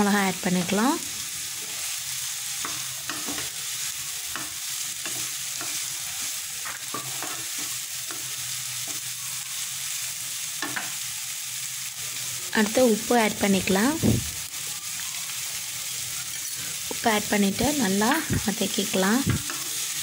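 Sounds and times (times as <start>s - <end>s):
vegetables sizzling in oil: 0.0s - 20.0s
spatula stirring and scraping: 1.5s - 9.2s.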